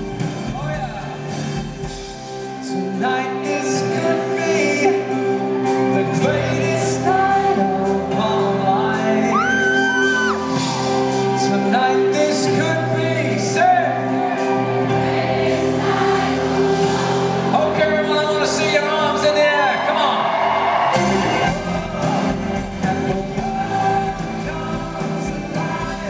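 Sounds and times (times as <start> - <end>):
live pop band playing: 0.0 - 26.0
man singing lead vocal: 2.4 - 15.0, 17.2 - 20.1, 20.9 - 26.0.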